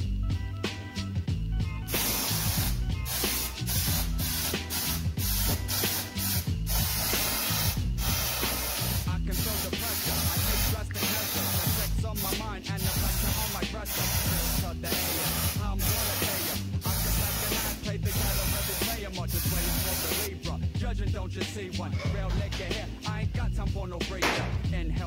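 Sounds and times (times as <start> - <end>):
background music: 0.0 - 25.0
aerosol can spraying: 1.9 - 20.4.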